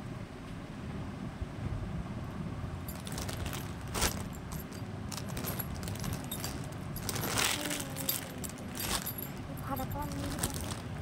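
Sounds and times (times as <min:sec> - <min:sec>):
bangles clinking: 0:02.8 - 0:11.0
cloth rustling: 0:02.9 - 0:11.0.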